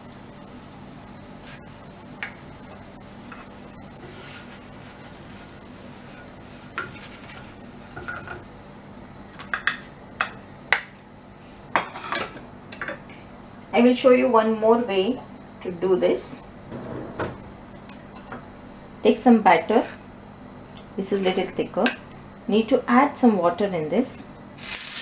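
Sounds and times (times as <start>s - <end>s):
wooden spatula scraping griddle: 3.3s - 7.6s.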